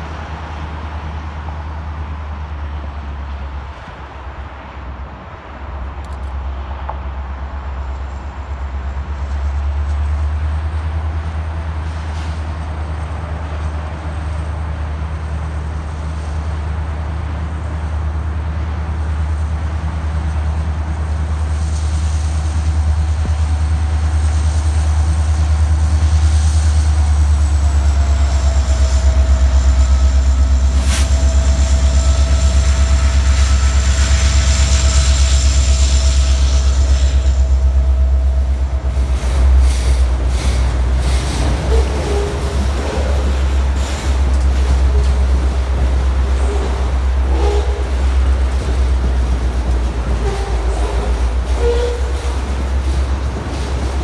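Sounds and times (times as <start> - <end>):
diesel locomotive engine drone: 0.0 - 54.0
train cars rolling past: 0.0 - 54.0
high-pitched wheel squeal: 41.6 - 48.6, 50.1 - 52.8.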